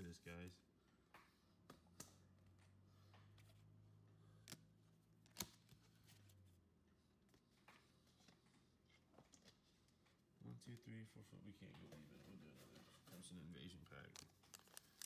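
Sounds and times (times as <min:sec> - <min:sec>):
handling trading cards: 0:01.2 - 0:06.4, 0:13.9 - 0:15.0.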